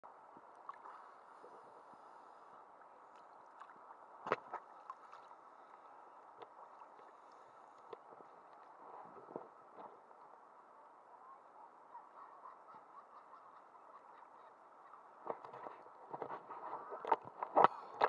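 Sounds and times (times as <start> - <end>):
small waves lapping: 0.4 - 10.7.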